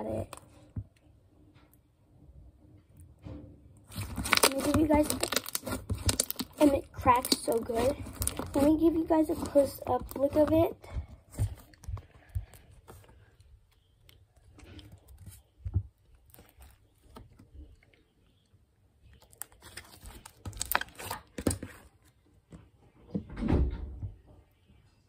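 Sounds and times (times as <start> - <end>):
slime crackling and popping: 3.8 - 10.7, 19.2 - 21.2.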